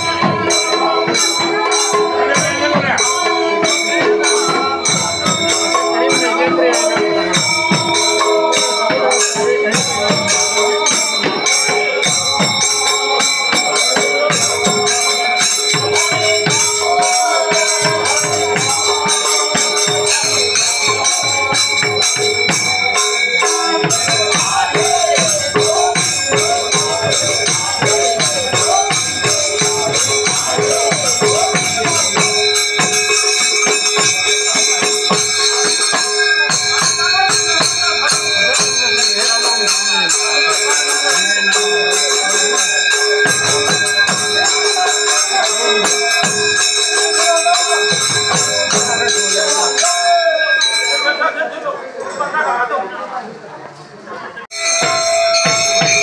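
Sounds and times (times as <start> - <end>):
barrel drums: 0.0 - 41.2
men singing in chorus: 0.0 - 51.2
hand cymbals clashing: 0.0 - 51.3, 54.5 - 56.0.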